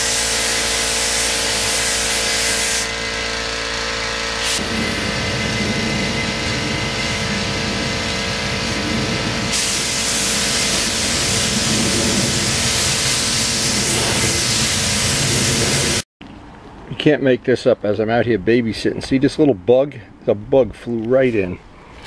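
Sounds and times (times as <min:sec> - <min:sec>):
spray gun hissing: 0:00.0 - 0:03.3, 0:04.3 - 0:16.0
steady multi-tone hum: 0:00.0 - 0:16.0.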